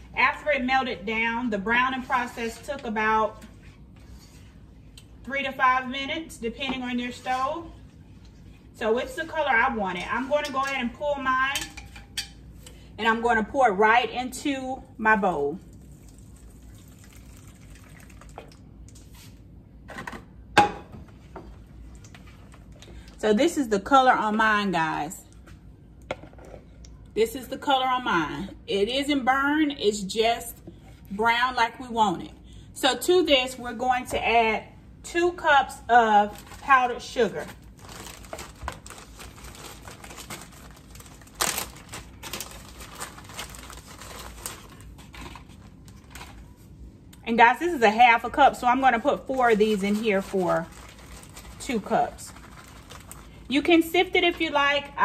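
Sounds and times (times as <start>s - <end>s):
butter trickling into bowl: 15.6s - 18.7s
packaging rustling and crinkling: 37.4s - 46.6s, 49.2s - 53.4s.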